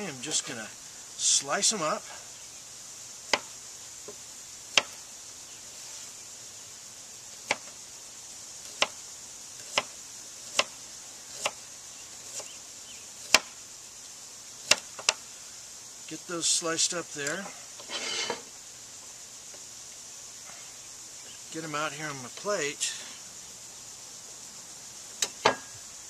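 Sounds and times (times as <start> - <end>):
knife slicing radish: 9.6 - 11.6.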